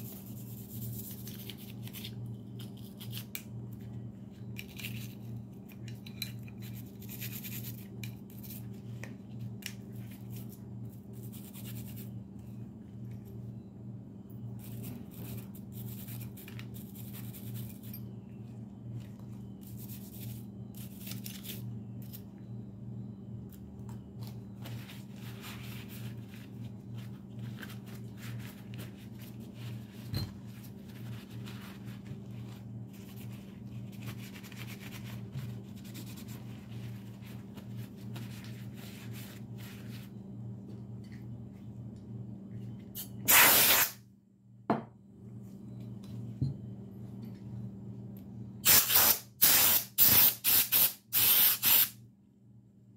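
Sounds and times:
steady low hum: 0.0 - 51.2
aerosol spray hiss: 48.7 - 51.9.

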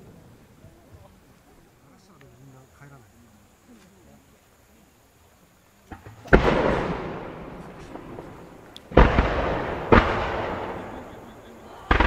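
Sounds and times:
firework shells booming: 5.9 - 12.0.

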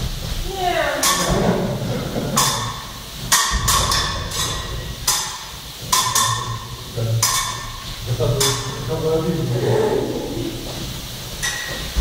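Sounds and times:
fencing blades clashing: 1.0 - 1.7, 2.3 - 8.9, 11.4 - 11.9.

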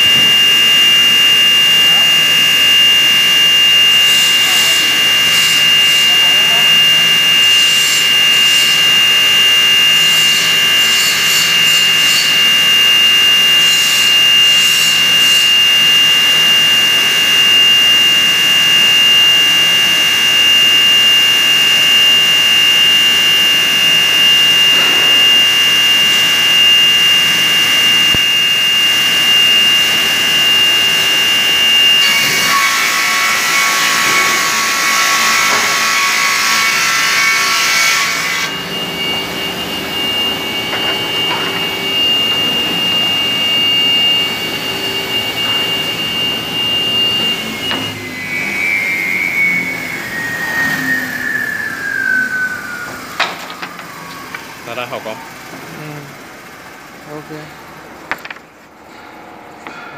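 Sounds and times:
rip saw whining: 0.0 - 57.7
saw cutting board: 3.7 - 16.0, 31.7 - 39.3, 40.0 - 54.5.

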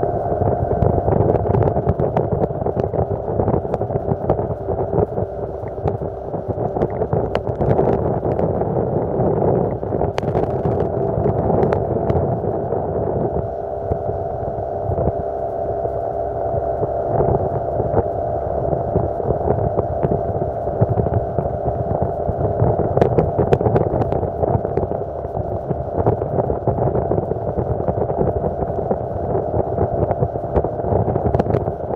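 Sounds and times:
water rushing: 0.0 - 15.2
outboard motor running: 0.0 - 31.9.

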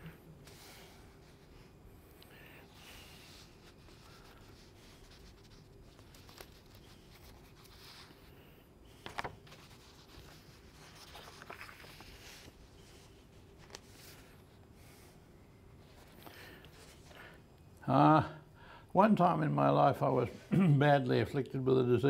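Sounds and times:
book pages rustling: 3.0 - 14.6, 15.8 - 17.3.

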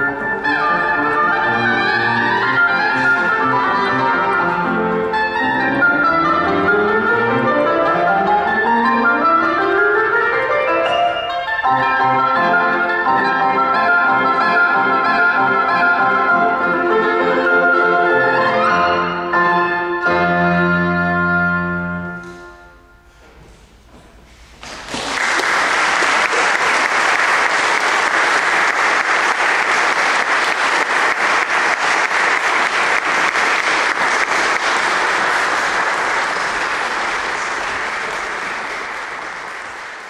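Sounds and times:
audience applause: 0.0 - 4.7, 24.6 - 40.0
oboe and piano chord: 0.0 - 23.2.

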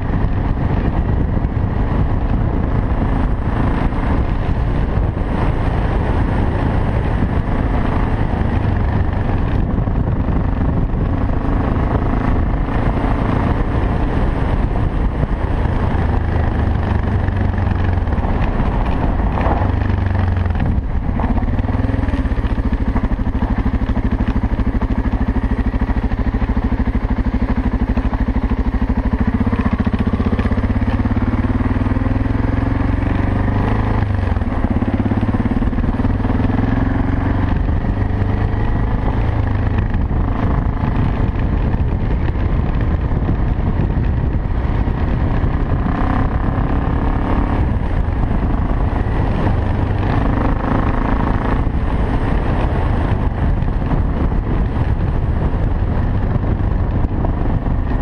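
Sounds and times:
motorcycle engine running: 0.0 - 58.0
tyres on gravel road: 0.0 - 58.0.

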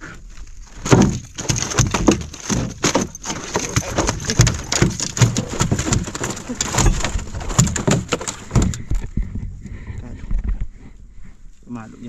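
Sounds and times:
knocks and thumps on boat: 0.8 - 9.6.

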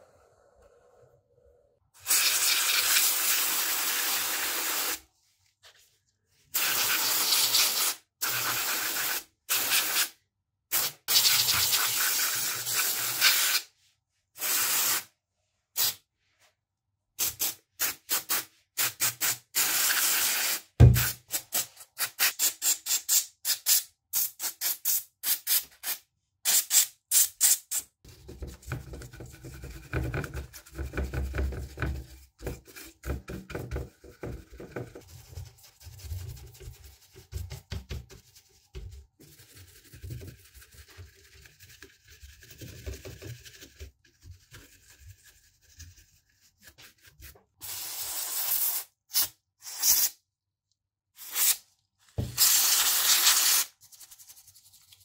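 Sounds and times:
aerosol spray hissing: 52.3 - 53.7.

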